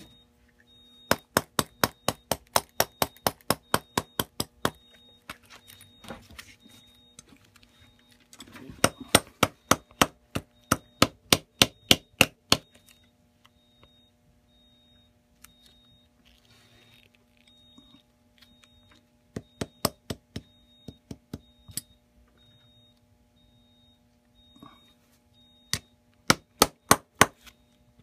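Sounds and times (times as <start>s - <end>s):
hammer tapping nails: 1.1s - 4.8s
rustling and scraping: 5.3s - 8.8s.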